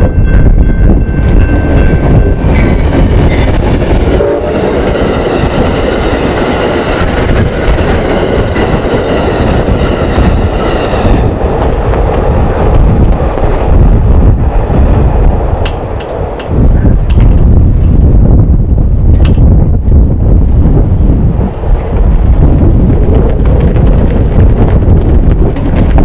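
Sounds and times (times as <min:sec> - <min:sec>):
train rumble: 0:00.0 - 0:26.0
wheel clatter on rails: 0:21.8 - 0:26.0.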